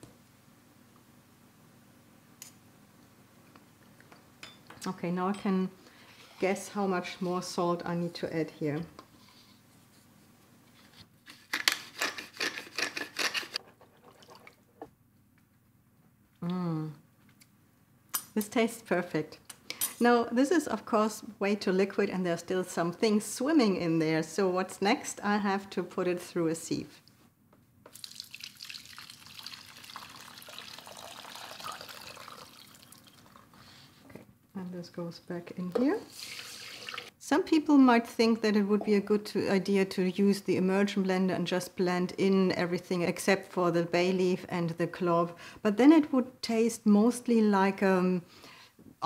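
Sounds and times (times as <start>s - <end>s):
gravy trickling through sieve: 27.9s - 33.9s, 36.0s - 37.1s
whisk scraping and splashing: 36.1s - 37.1s.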